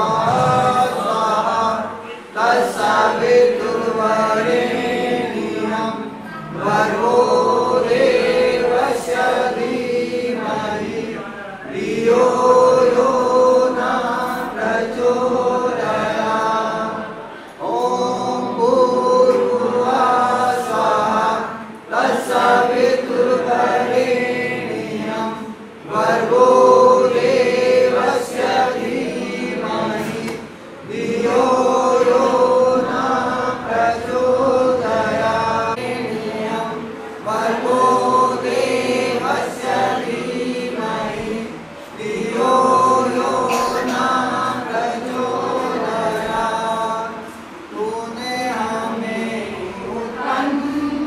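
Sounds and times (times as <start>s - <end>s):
group of voices chanting: 0.0s - 46.9s.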